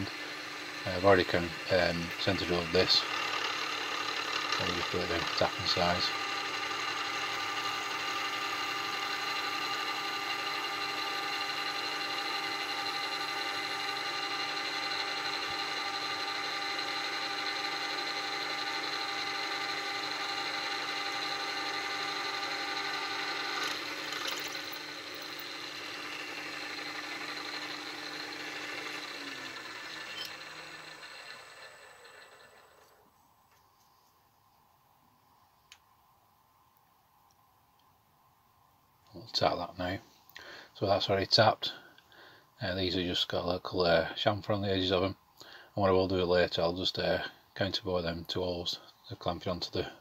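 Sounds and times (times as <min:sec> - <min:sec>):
milling machine drilling metal: 0:00.0 - 0:33.0.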